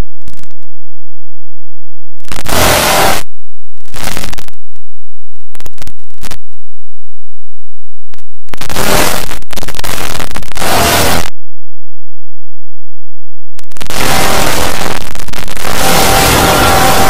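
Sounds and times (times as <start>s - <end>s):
harsh distorted digital noise: 0.0s - 0.7s, 2.2s - 6.6s, 8.1s - 11.4s, 13.6s - 17.0s.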